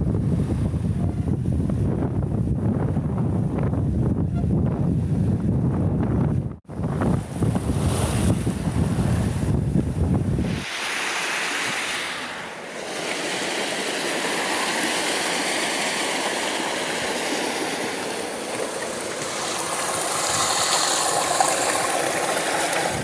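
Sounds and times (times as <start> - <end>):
water running down wooden flume: 10.4 - 23.0
water splashing into pool: 10.4 - 23.0.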